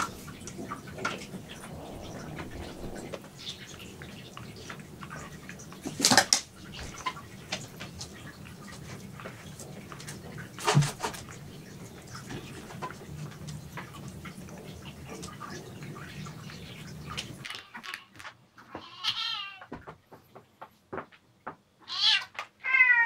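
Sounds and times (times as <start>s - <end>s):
cats tapping and clicking: 17.1s - 22.6s
cat meowing: 18.8s - 19.7s, 21.9s - 23.0s.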